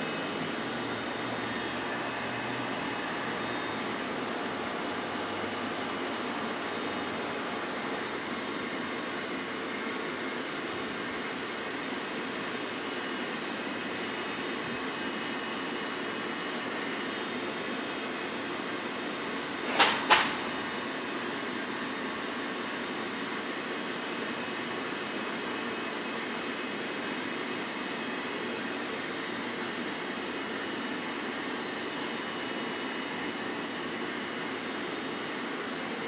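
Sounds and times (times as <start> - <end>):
steady mechanical drone: 0.0 - 15.4.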